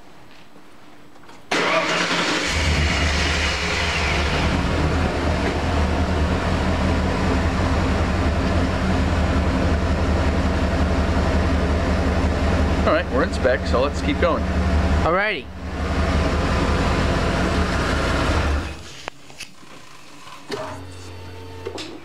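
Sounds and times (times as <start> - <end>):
car engine starting and idling: 1.5 - 19.1.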